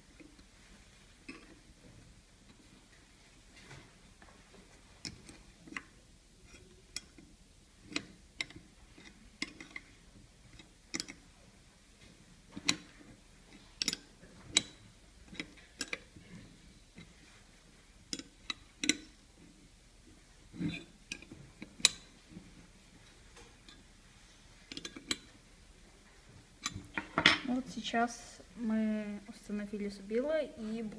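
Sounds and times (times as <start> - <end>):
wrench clicking on metal nuts: 13.8 - 16.1.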